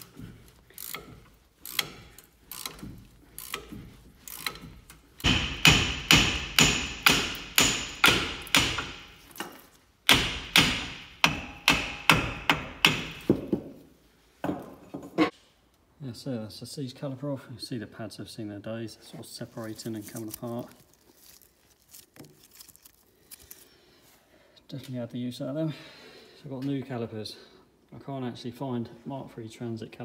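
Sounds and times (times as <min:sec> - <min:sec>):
tools clicking: 0:00.0 - 0:09.6
hammer striking metal: 0:05.2 - 0:09.2, 0:10.1 - 0:13.4.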